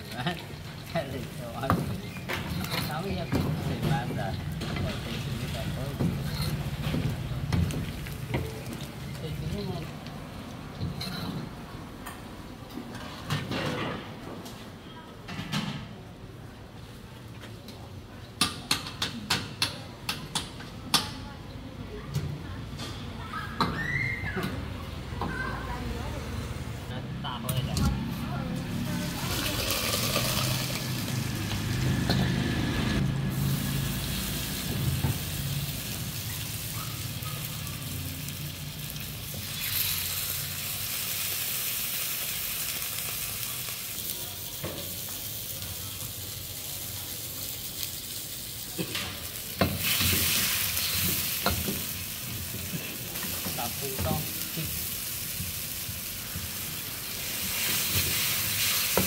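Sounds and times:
food sizzling in hot oil: 0:28.8 - 0:59.0.

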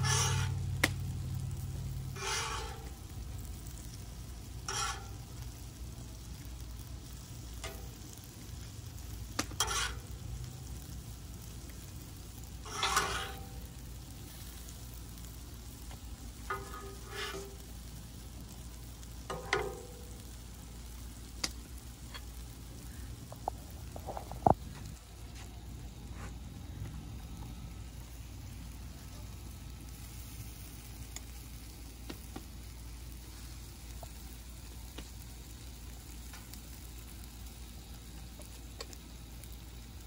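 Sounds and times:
spatula scraping griddle: 0:00.0 - 0:05.8, 0:07.5 - 0:11.6, 0:12.4 - 0:14.6, 0:15.2 - 0:17.9, 0:19.2 - 0:20.3
steady low hum: 0:00.0 - 0:32.0
food sizzling: 0:00.0 - 0:40.0.

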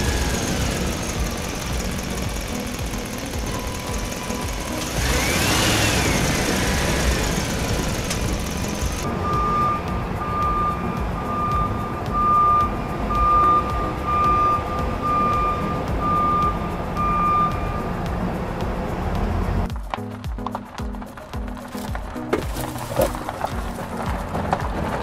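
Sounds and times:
reversing alarm beeping: 0:03.4 - 0:05.6, 0:09.1 - 0:17.9.

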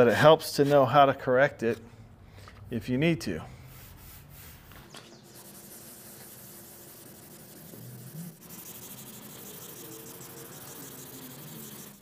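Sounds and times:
sandpaper rubbing: 0:00.4 - 0:01.0, 0:03.6 - 0:12.0.

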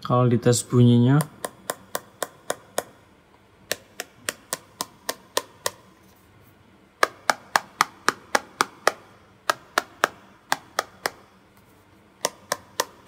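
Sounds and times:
taps on glass phone screen: 0:01.2 - 0:03.0, 0:03.7 - 0:05.9, 0:07.0 - 0:11.3, 0:12.2 - 0:13.0.

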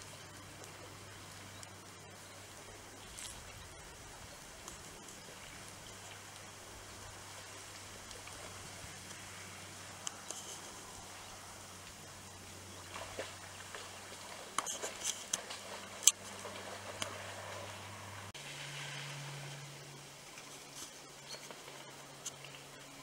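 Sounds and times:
low steady hum: 0:00.0 - 0:23.0
sharp clicks and crackles: 0:07.6 - 0:11.2, 0:14.5 - 0:16.3.

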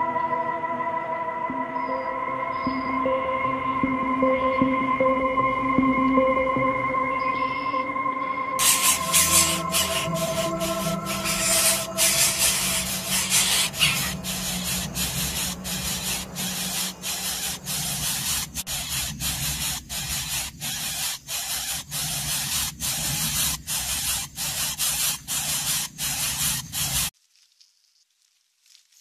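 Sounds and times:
harsh hissing: 0:08.6 - 0:27.1.

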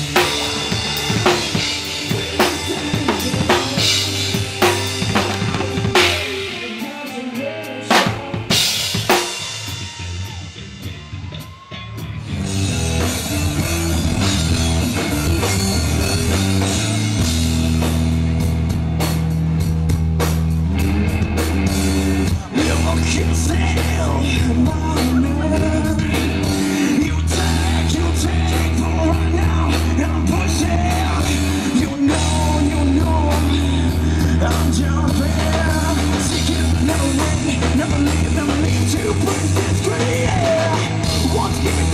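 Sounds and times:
drum and cymbal hits: 0:00.0 - 0:11.7
person singing: 0:00.0 - 0:12.2, 0:22.2 - 0:41.9
electric bass: 0:00.0 - 0:41.9
rock band playing: 0:00.0 - 0:41.9.

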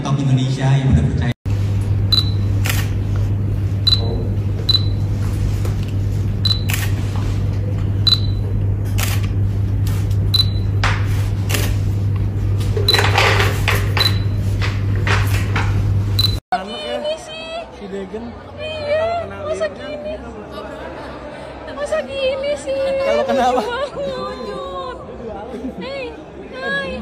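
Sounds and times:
steady low hum: 0:01.5 - 0:16.4
camera shutter firing: 0:02.6 - 0:03.0, 0:06.6 - 0:07.0, 0:09.0 - 0:09.3
short high beep: 0:04.7 - 0:05.0, 0:08.1 - 0:08.4.

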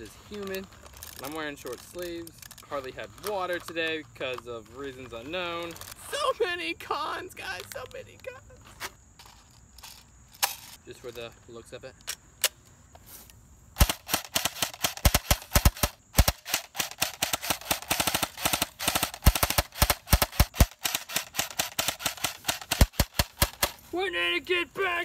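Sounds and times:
airsoft rifle clicks: 0:00.4 - 0:06.0, 0:12.0 - 0:23.8
rapid full-auto airsoft bursts: 0:13.8 - 0:23.8.

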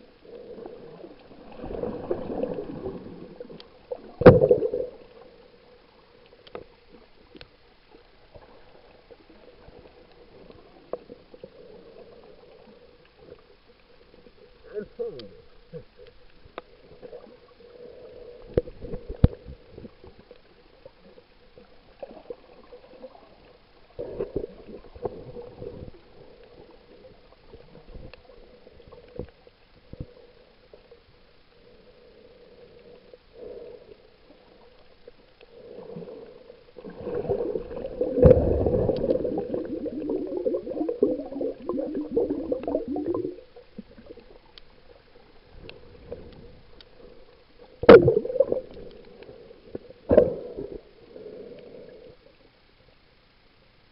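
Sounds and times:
water gurgling and bubbling: 0:00.0 - 0:05.3, 0:35.6 - 0:44.5, 0:45.9 - 0:52.0.

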